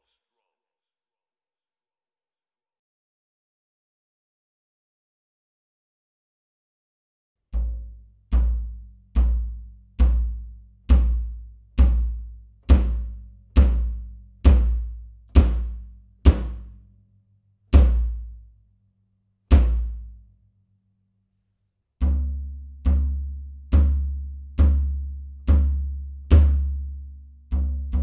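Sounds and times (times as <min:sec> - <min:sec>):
bass drum booming: 0:07.6 - 0:16.7, 0:17.8 - 0:18.3.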